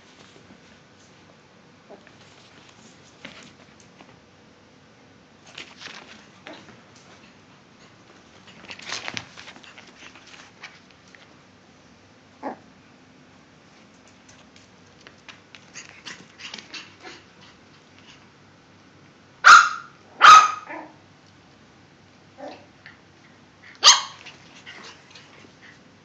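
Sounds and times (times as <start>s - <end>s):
scuffling sounds: 2.0s - 4.2s
dogs barking: 19.4s - 21.0s, 23.8s - 24.2s.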